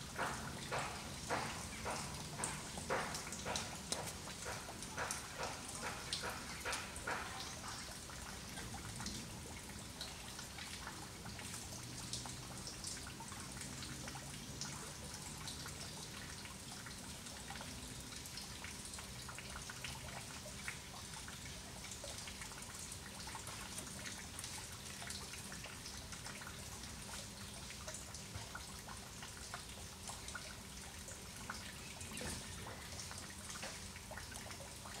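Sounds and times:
light ticks and drips: 0.0 - 35.0
low steady hiss: 7.3 - 35.0.

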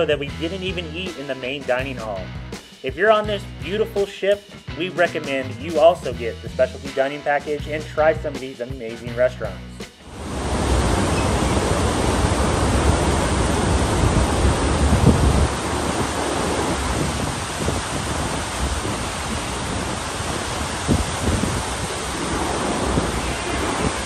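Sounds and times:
ship wake churning sea: 10.1 - 24.0
wind rumbling on microphone: 10.1 - 24.0.

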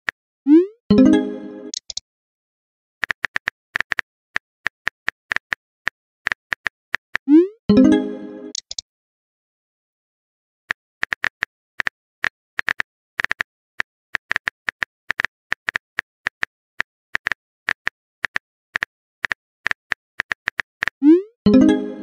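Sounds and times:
phone keyboard typing clicks: 1.7 - 2.0, 8.5 - 8.8.

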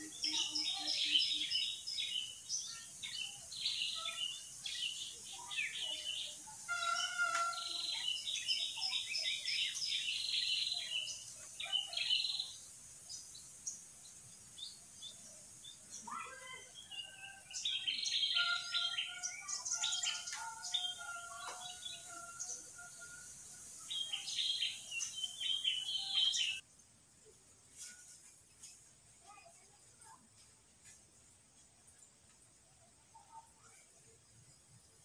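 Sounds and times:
birds chirping and whistling: 0.0 - 12.6, 16.8 - 26.6.

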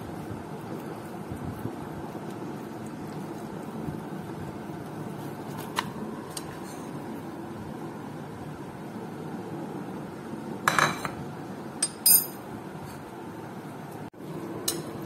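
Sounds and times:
metal spoon clinking on plate: 11.8 - 12.4.

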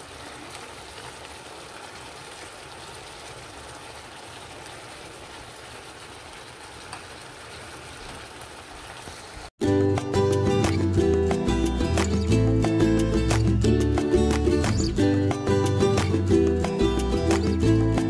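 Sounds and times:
sauce simmering in a skillet: 0.0 - 9.5
music: 9.6 - 18.0.

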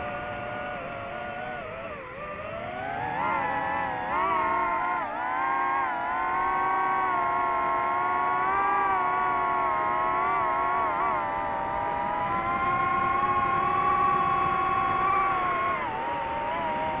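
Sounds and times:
drone propellers whining: 0.0 - 17.0.

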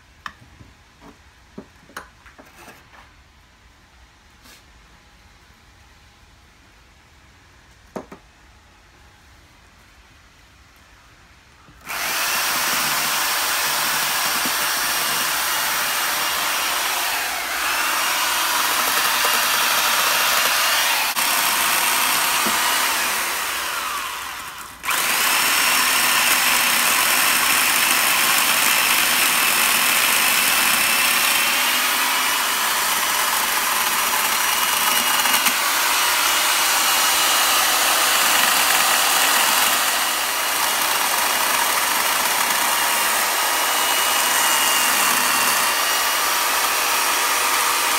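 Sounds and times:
electric chainsaw cutting wood: 11.8 - 47.9.

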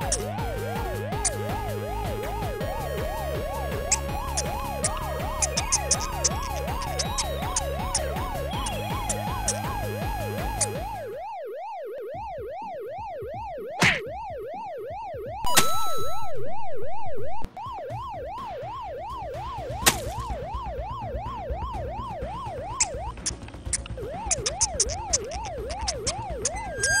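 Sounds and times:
loud steady electronic tone: 0.0 - 13.7, 20.6 - 27.0
siren wailing: 0.0 - 27.0.

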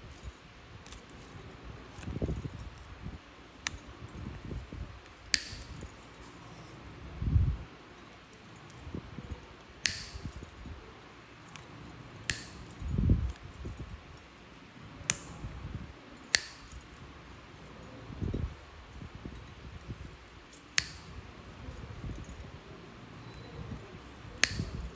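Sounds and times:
nail nippers snapping: 5.1 - 5.9, 9.8 - 10.5, 11.5 - 13.4, 15.0 - 15.4, 16.3 - 17.0, 20.6 - 21.2, 23.3 - 24.9.

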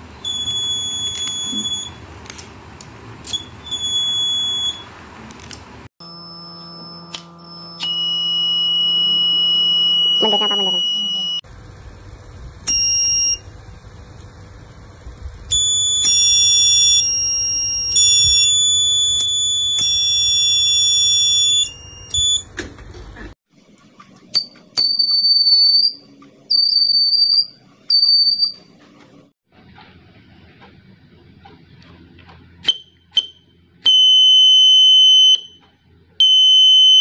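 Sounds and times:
piezo buzzer tones: 0.2 - 2.0, 6.0 - 11.5, 15.5 - 22.5, 32.6 - 35.6, 36.2 - 37.0
lower pitched beeps: 6.0 - 11.4.

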